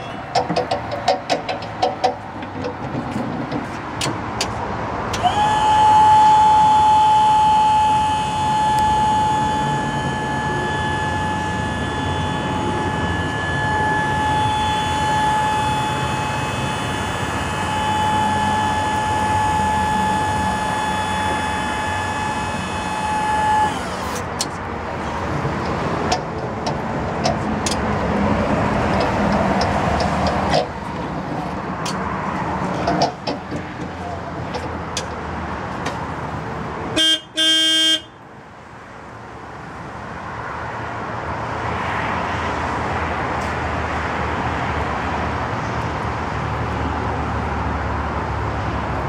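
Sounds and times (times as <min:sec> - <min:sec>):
hydraulic pump motor whining: 0:00.1 - 0:35.2
clicks and knocks: 0:00.3 - 0:04.6.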